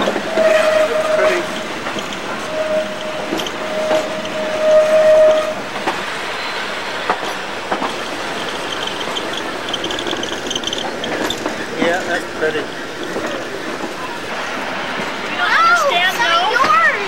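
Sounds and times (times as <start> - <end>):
high wheel squeal: 0.0 - 11.6
train running noise: 0.0 - 17.0
train wheel clacks: 0.0 - 17.0.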